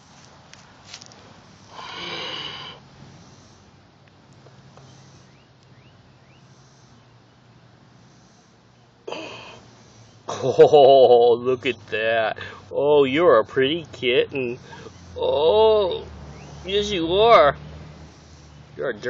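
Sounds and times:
kitten hissing: 1.7 - 2.8.

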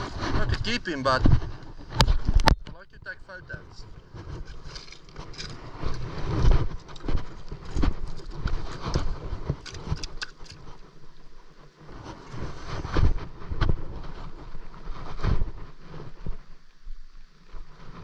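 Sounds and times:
wind rumble on microphone: 0.0 - 18.0.

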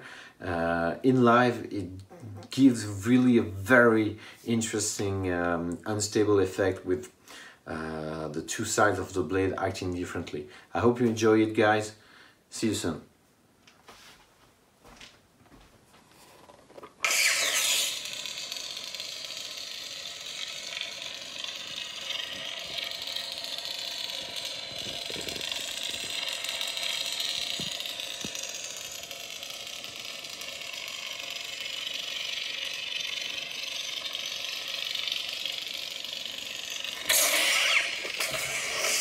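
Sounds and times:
wavering rattly lightsaber hum: 16.3 - 39.0
lightsaber ignition: 17.0 - 39.0.

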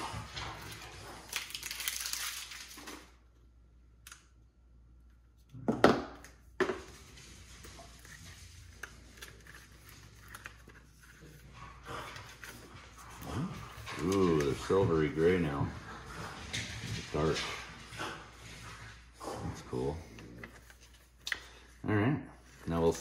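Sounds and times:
packaging rustling and crinkling: 0.5 - 3.1, 6.8 - 11.4.

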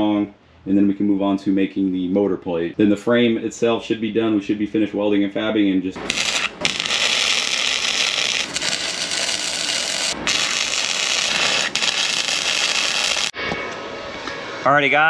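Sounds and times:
welder sizzling: 6.0 - 13.4.

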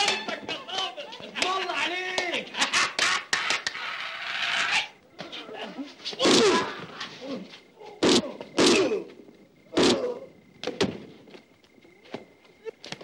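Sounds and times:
fighters grunting and crying out: 3.4 - 10.4.

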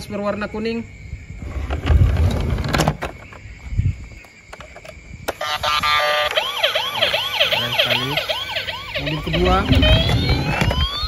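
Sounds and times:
toy electronic siren: 5.3 - 11.0.

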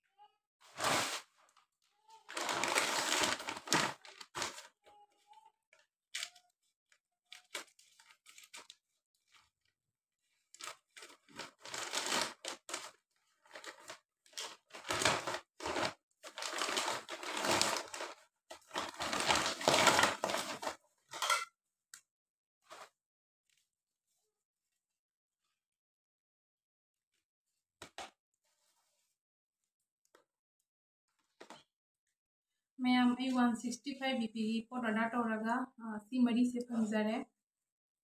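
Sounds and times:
bag tearing open: 0.7 - 1.3, 2.3 - 4.7, 10.6 - 12.9, 13.5 - 20.8
plastic bags crinkling: 2.3 - 4.8, 10.6 - 21.4.

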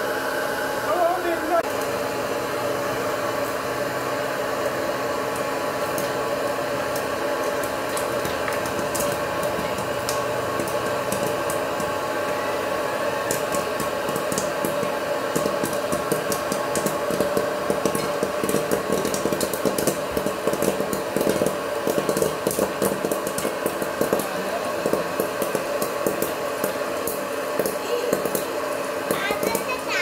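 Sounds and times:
popcorn popper fan motor humming: 0.0 - 30.0
popcorn kernels popping: 2.8 - 30.0.

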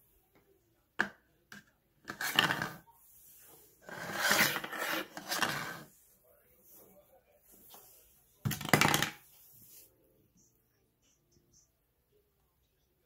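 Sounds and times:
pig ear scraping on wooden floor: 3.8 - 5.9.

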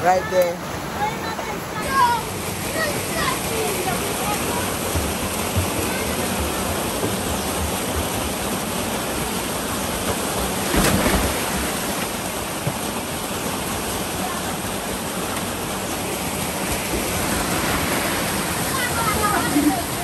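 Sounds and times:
river rushing through rock channel: 0.0 - 20.0
person splashing into water: 10.6 - 12.0.

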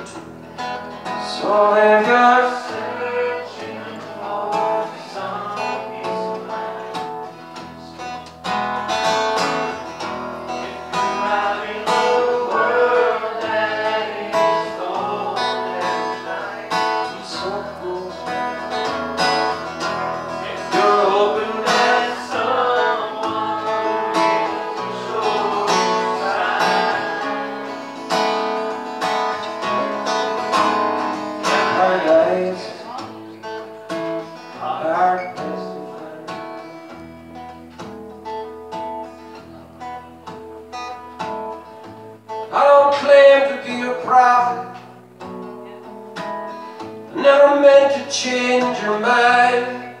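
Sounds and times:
acoustic guitar strummed: 0.0 - 50.0
man singing: 1.1 - 7.4, 10.4 - 27.9, 31.3 - 33.1, 34.5 - 36.6, 42.5 - 44.8, 47.1 - 50.0.

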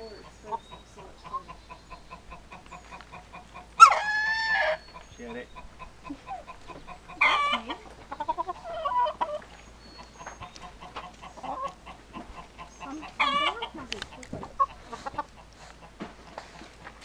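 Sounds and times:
rooster clucking: 0.0 - 16.8
rooster calls: 3.8 - 4.8.

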